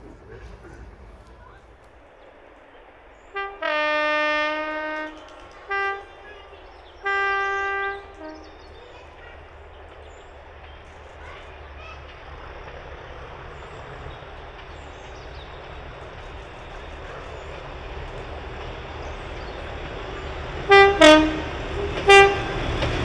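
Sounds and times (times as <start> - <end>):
locomotive engine rumble: 0.0 - 23.0
locomotive two-tone horn: 3.3 - 8.6, 20.6 - 22.7.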